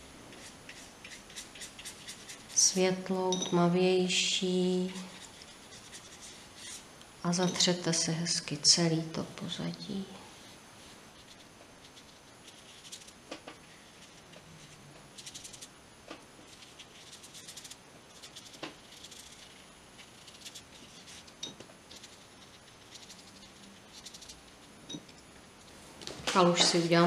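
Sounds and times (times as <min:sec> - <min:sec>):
paintbrush strokes on paper: 0:00.0 - 0:02.8, 0:04.1 - 0:06.8, 0:10.3 - 0:15.7, 0:16.4 - 0:24.7.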